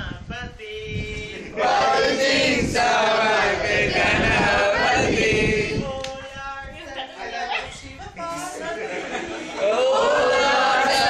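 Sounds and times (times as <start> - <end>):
group chanting in unison: 1.4 - 5.9, 9.1 - 11.0.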